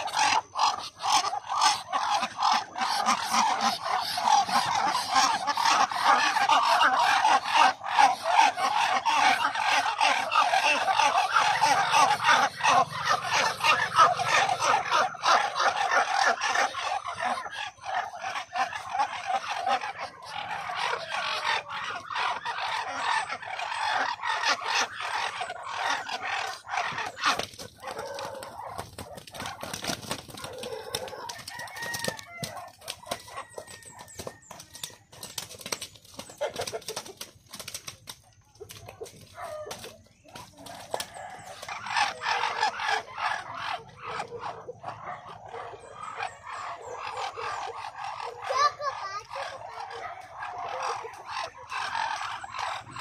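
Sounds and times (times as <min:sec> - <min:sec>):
poultry clucking and calling: 0:00.0 - 0:53.0.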